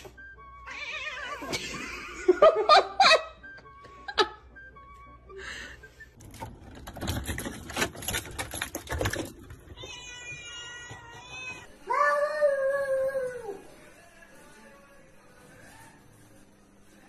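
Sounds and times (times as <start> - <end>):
person laughing: 1.4 - 4.5
keys rattling in door lock: 6.2 - 9.8.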